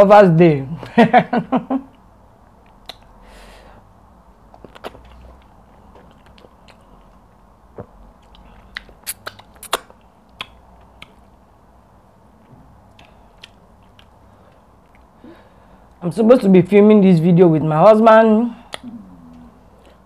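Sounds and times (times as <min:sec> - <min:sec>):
wet lip smacks: 0:02.7 - 0:03.2, 0:04.5 - 0:07.2, 0:07.8 - 0:11.3, 0:12.9 - 0:14.2, 0:18.7 - 0:20.0
chewing: 0:04.5 - 0:11.3, 0:12.9 - 0:15.1
sucking soup off fingers: 0:07.8 - 0:11.2.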